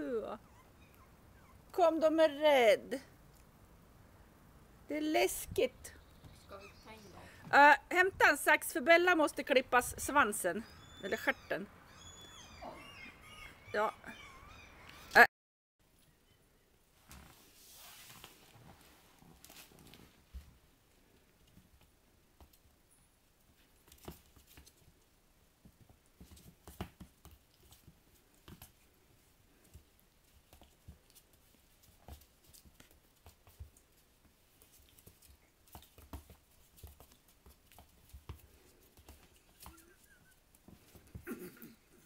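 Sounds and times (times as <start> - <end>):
puppy paws tapping on wooden floor: 25.6 - 28.8, 29.6 - 41.2.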